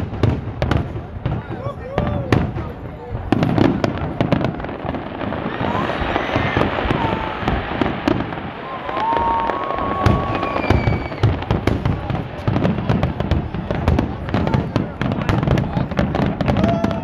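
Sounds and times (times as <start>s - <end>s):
fireworks bangs and crackling: 0.0s - 17.0s
firework whistle: 4.1s - 11.6s.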